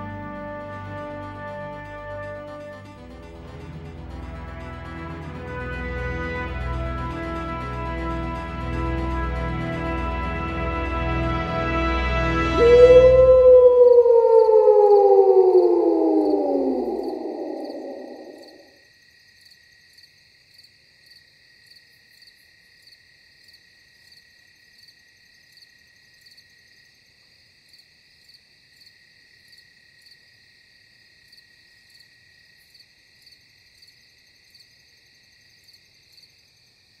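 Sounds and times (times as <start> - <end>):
crickets trilling: 13.3 - 26.9.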